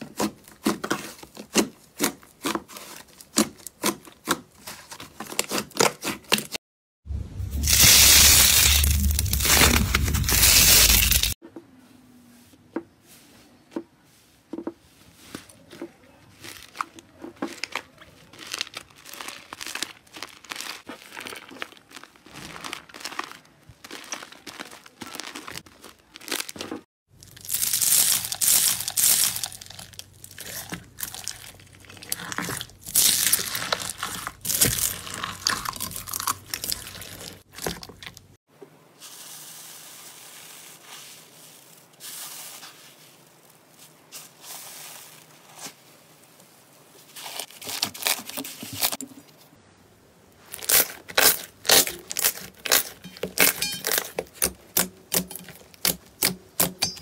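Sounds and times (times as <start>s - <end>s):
slime squishing and crackling: 15.6s - 38.4s, 50.4s - 56.9s.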